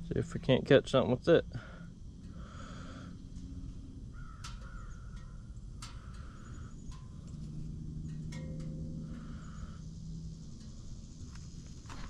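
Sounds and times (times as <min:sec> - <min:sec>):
low steady hum: 0:00.0 - 0:12.0
bird calling: 0:04.1 - 0:07.0.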